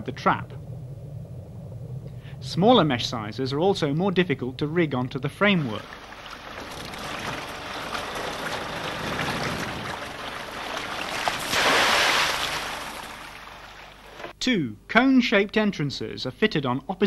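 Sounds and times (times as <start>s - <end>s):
water splashing against boat hull: 5.0s - 14.4s.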